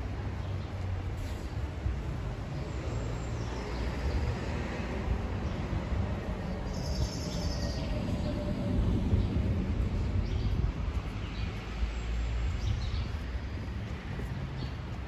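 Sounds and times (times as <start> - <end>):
distant traffic rumble: 0.0 - 15.0.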